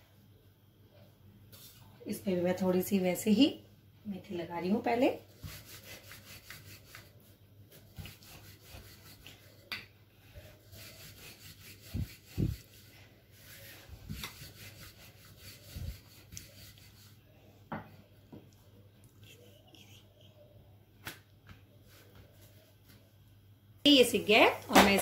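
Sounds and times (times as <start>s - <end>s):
rolling pin rubbing on dough: 4.8s - 9.7s, 10.4s - 17.3s.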